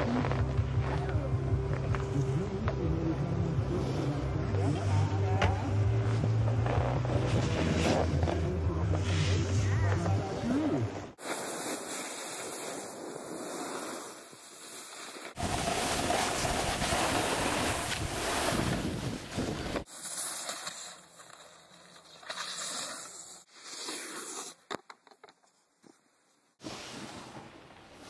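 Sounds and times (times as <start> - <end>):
snowboard scraping over snow: 3.7 - 10.2, 11.2 - 24.6, 26.6 - 28.0
wind rushing over microphone: 15.4 - 19.8.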